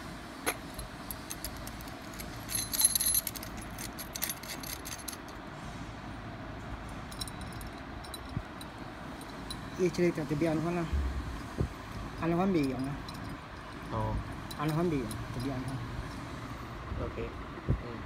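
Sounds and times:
steady background noise: 0:00.0 - 0:18.0
metal parts clinking: 0:00.4 - 0:05.4, 0:07.1 - 0:09.7, 0:12.1 - 0:13.9.

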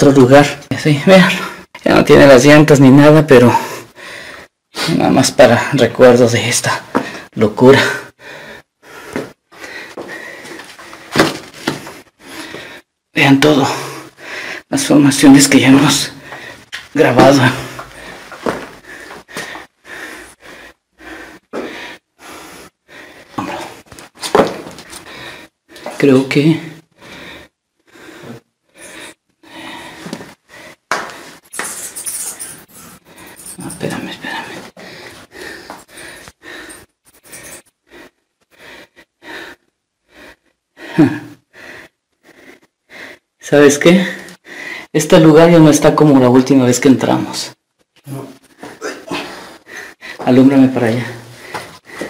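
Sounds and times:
person breathing hard: 0:03.5 - 0:05.0, 0:07.9 - 0:13.0, 0:13.7 - 0:14.7, 0:16.1 - 0:16.9, 0:17.6 - 0:26.0, 0:26.7 - 0:43.4, 0:44.0 - 0:45.0, 0:48.1 - 0:52.0.

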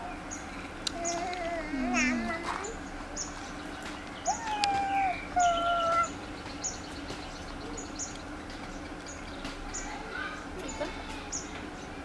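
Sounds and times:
baby monkey coo calls: 0:04.2 - 0:06.2.

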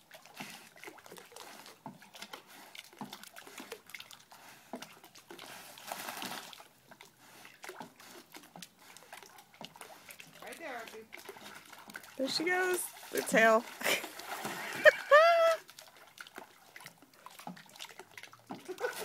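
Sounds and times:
rush of water: 0:00.0 - 0:19.0
dog splashing in water: 0:07.6 - 0:15.1.

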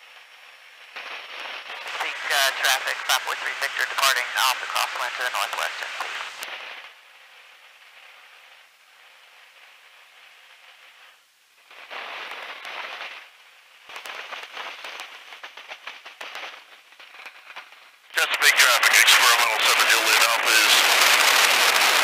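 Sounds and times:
crackling static: 0:00.0 - 0:22.0
radio static hiss: 0:00.9 - 0:08.8, 0:17.6 - 0:22.0.

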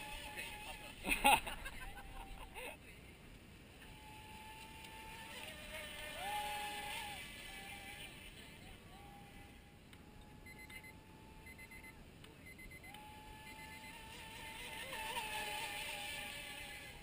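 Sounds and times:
rc speedboat motor whine: 0:00.0 - 0:01.0, 0:03.8 - 0:11.8, 0:12.9 - 0:17.0.

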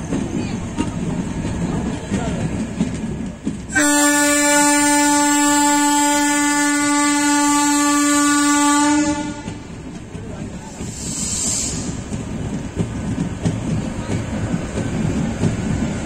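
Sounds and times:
train rumble and wheel clatter: 0:00.0 - 0:16.0
locomotive horn blast: 0:03.7 - 0:09.6.

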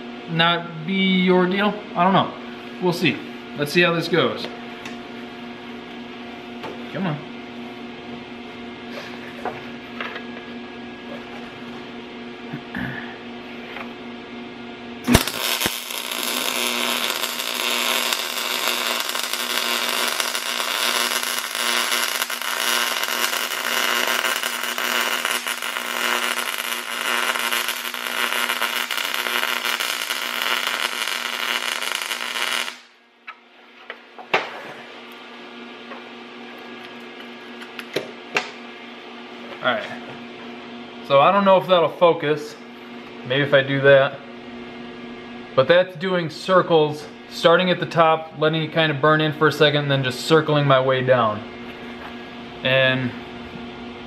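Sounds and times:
welding arc crackling: 0:15.0 - 0:33.0.

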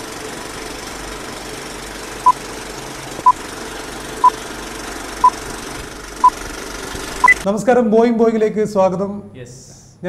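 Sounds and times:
film projector whirring: 0:00.0 - 0:07.4.

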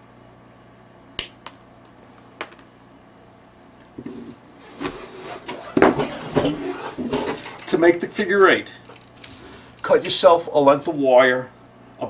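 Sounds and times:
metal chain and tools clattering: 0:07.2 - 0:07.8, 0:08.8 - 0:09.9.

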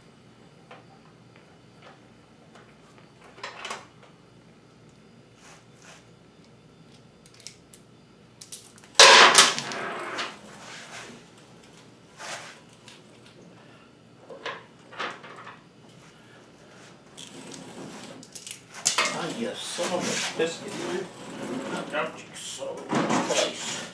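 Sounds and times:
tools and hardware clattering: 0:08.7 - 0:10.3, 0:18.2 - 0:19.9.

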